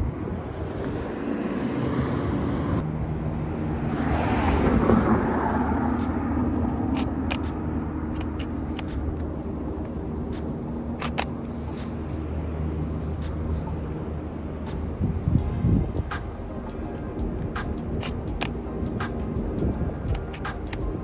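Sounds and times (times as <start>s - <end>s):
traffic engine hum: 0.0s - 21.0s
vehicle passing: 0.0s - 21.0s
camera shutter clicks: 6.9s - 7.4s, 8.1s - 9.0s, 11.0s - 11.4s, 18.0s - 18.6s.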